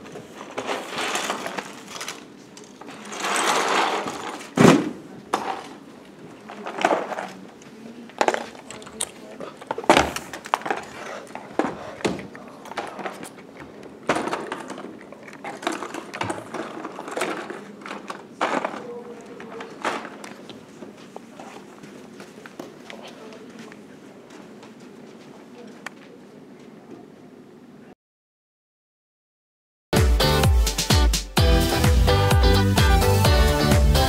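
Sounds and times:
plastic pieces rattling in bins: 0.2s - 4.7s, 6.5s - 7.4s, 12.7s - 20.4s
containers knocking down: 0.2s - 5.9s, 11.6s - 20.4s.

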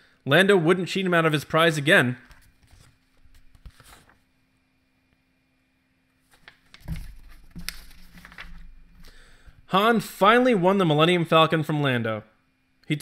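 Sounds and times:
book pages turning: 2.2s - 4.3s, 6.2s - 9.1s.

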